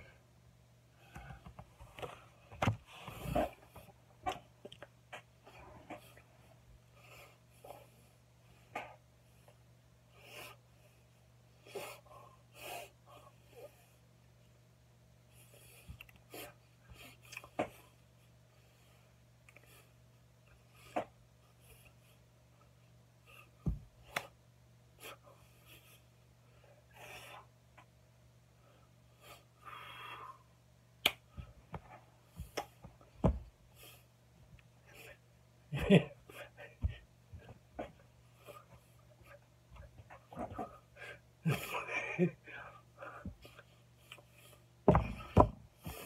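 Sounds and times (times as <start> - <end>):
hand slaps: 31.0 - 31.2.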